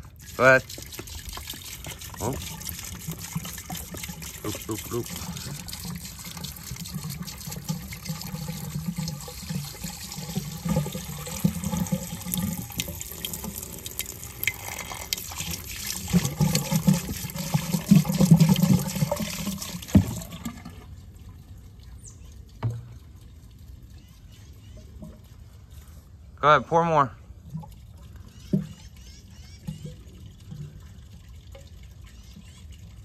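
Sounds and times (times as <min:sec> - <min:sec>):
liquid pouring and splashing: 0:00.0 - 0:26.2, 0:27.3 - 0:33.0.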